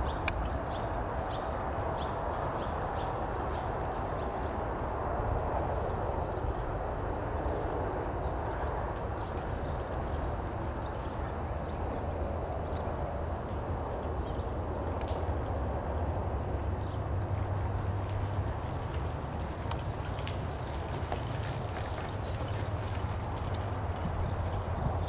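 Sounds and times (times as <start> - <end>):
muffled hoofbeats on dirt: 16.6 - 25.0.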